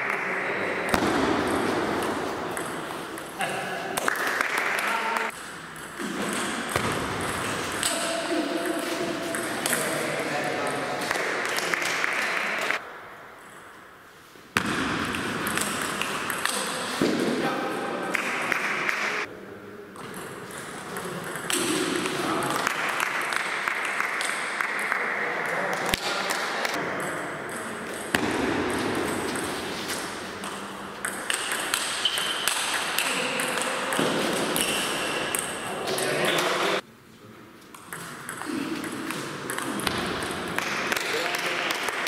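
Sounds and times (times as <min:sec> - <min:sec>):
ball bouncing on table: 0:00.9 - 0:03.3, 0:05.8 - 0:08.0, 0:26.8 - 0:29.5, 0:37.8 - 0:41.1.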